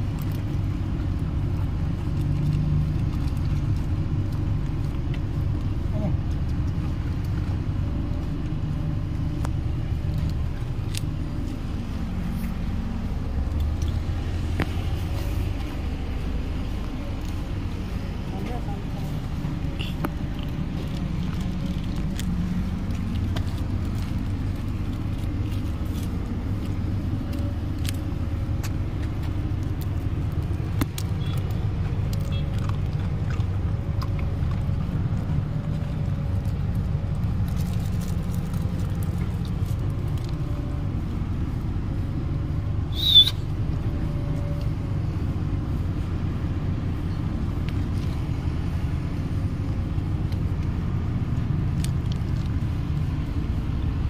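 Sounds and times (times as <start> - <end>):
road traffic rumble: 0.0 - 54.0
sharp high-pitched squeak: 42.9 - 43.5.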